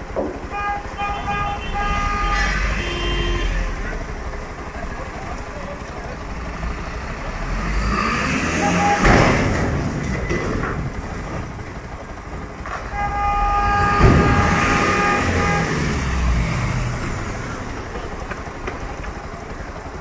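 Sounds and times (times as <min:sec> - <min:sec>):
engine running: 0:00.0 - 0:20.0
street traffic rumble: 0:00.0 - 0:20.0
vehicle horn honking: 0:00.4 - 0:04.2, 0:08.4 - 0:09.5, 0:12.8 - 0:16.6
sharp thumps: 0:08.7 - 0:19.2.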